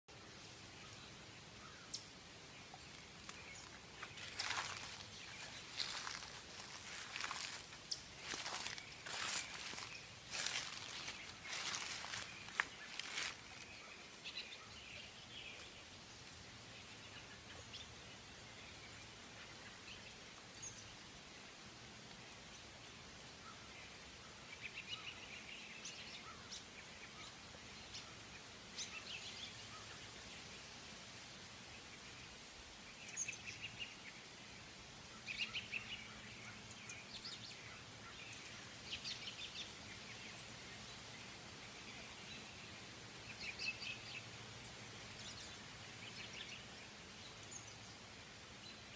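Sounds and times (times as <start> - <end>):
faint steady hiss: 0.1 - 48.9
high-pitched chirping calls: 3.6 - 13.4.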